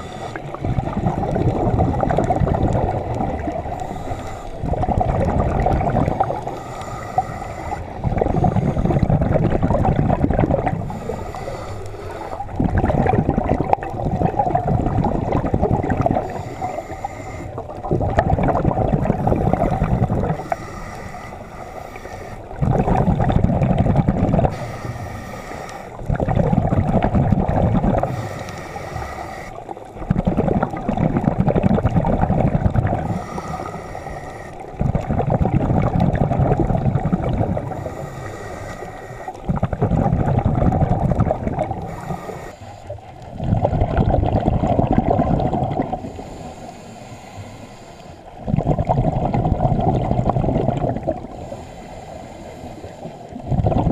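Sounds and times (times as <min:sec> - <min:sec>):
scuba regulator inhale hiss: 0:00.0 - 0:00.6, 0:03.7 - 0:04.7, 0:06.3 - 0:09.1, 0:10.8 - 0:12.5, 0:16.2 - 0:17.6, 0:19.1 - 0:22.6, 0:24.5 - 0:26.1, 0:28.0 - 0:29.8, 0:33.0 - 0:34.8, 0:37.5 - 0:39.5, 0:41.7 - 0:43.0, 0:45.9 - 0:48.4, 0:51.2 - 0:53.4
exhaled air bubbling: 0:00.0 - 0:53.9.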